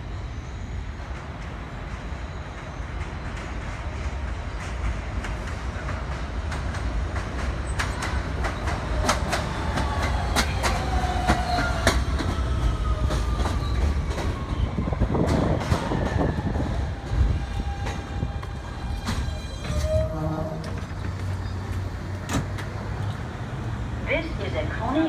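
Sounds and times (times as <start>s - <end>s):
train wheels clacking over rails: 1.1s - 23.8s
train braking: 7.6s - 22.8s.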